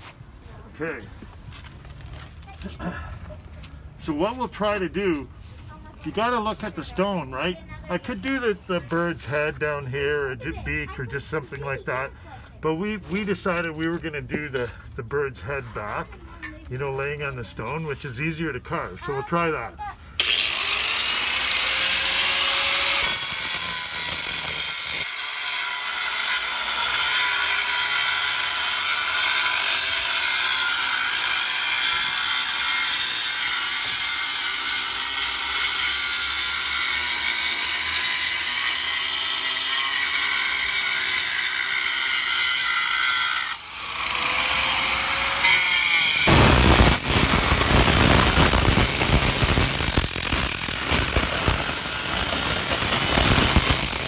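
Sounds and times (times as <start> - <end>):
angle grinder cutting stone: 20.2 - 54.0.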